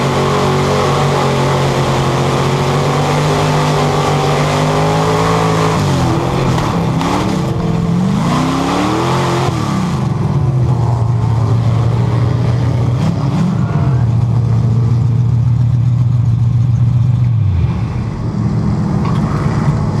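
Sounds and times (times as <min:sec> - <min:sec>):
race car engine revving: 0:00.0 - 0:15.8.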